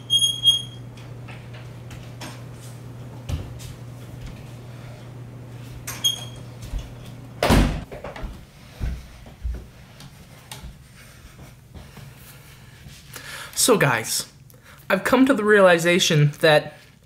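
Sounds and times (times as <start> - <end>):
short squeak: 0.0 - 0.8
steady low hum: 0.0 - 13.6
footsteps across a room: 0.8 - 13.2
door thudding: 7.4 - 7.9.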